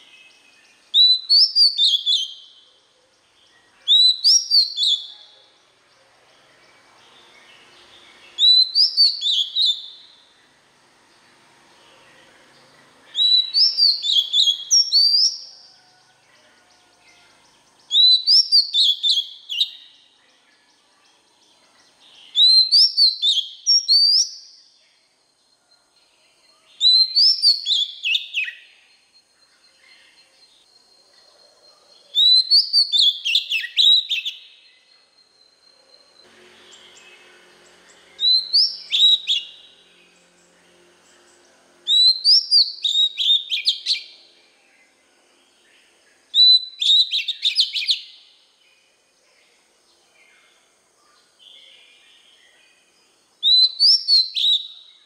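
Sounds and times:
bird singing whistled phrases: 0.9 - 2.7, 3.6 - 5.4, 8.3 - 10.3, 13.1 - 15.8, 17.9 - 20.1, 22.2 - 24.7, 26.5 - 28.8, 32.1 - 37.0, 38.1 - 39.7, 41.9 - 44.1, 46.3 - 48.3, 53.4 - 55.0.

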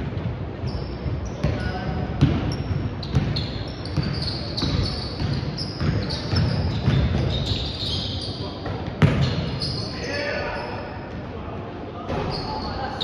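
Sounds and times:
sneakers squeaking: 0.1 - 11.3, 12.0 - 13.0
basketball bouncing: 1.4 - 7.4, 8.9 - 9.4.

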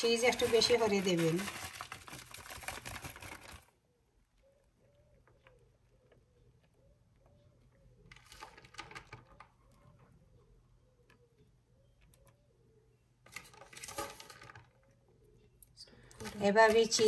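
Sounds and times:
shredded cheese rustling: 0.0 - 3.6.

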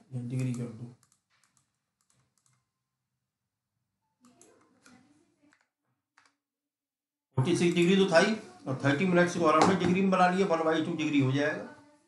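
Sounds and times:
faint keyboard clicks: 0.2 - 2.7, 4.2 - 6.4.

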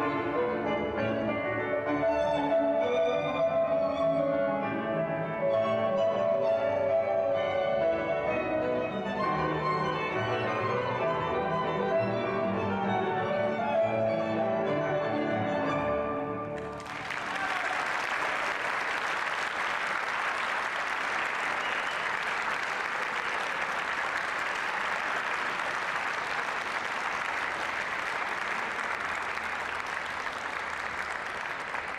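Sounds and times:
tango music: 0.0 - 17.0
audience applauding: 16.6 - 31.9.

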